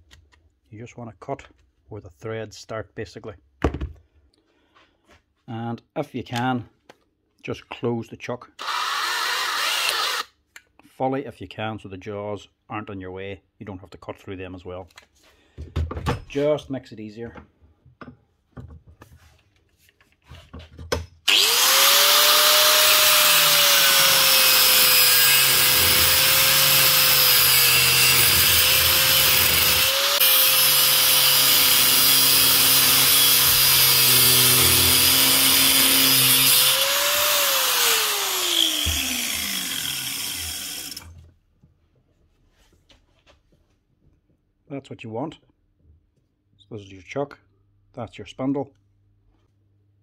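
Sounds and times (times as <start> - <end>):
angle grinder cutting steel: 8.6 - 10.3, 21.3 - 41.1.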